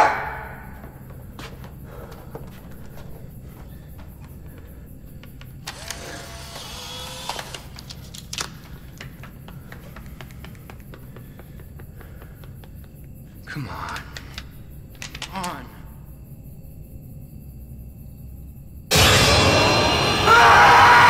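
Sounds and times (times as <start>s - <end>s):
sharp clicks: 5.2s - 10.6s
camera motor whirring: 5.7s - 7.8s.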